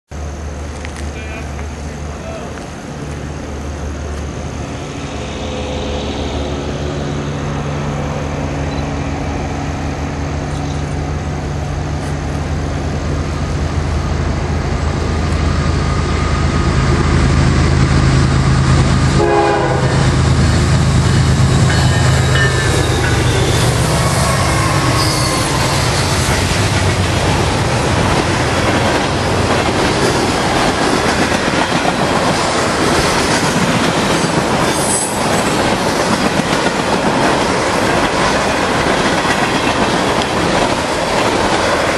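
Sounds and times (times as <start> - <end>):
locomotive engines droning: 0.1 - 41.9
train wheels rumbling and clattering: 0.2 - 41.9
wheel squeals: 21.4 - 26.5.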